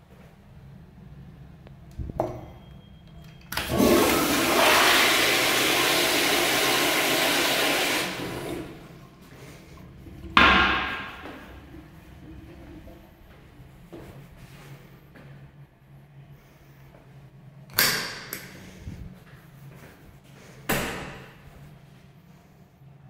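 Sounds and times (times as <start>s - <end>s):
toilet flushing: 3.5s - 14.7s.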